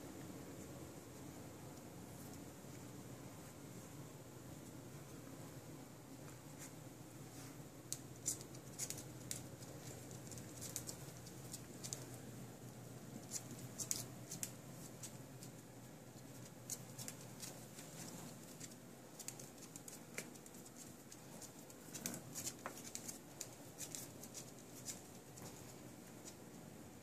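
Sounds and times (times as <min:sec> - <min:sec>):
dog toenails clicking on floor: 0:07.8 - 0:26.7.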